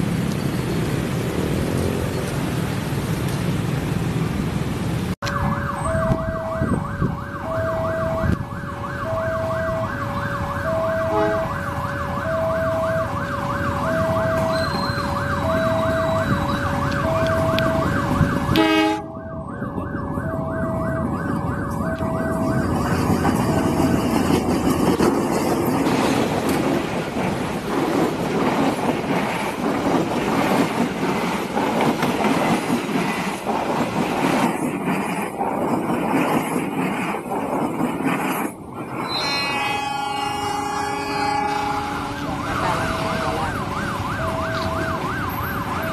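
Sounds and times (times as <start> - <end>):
diesel train passing on rails: 0.0 - 45.9
level crossing alarm warbling: 5.2 - 23.7, 41.2 - 45.9.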